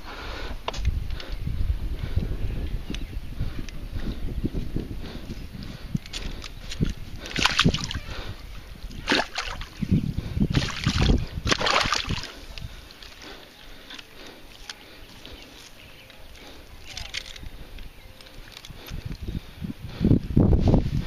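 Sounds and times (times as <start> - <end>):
water splashing and sloshing: 6.2 - 9.8, 10.5 - 14.0.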